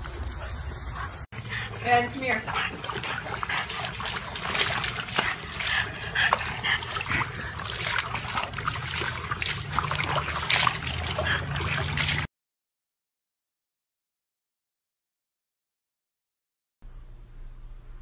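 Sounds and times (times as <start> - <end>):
water splashing and trickling: 0.0 - 12.3.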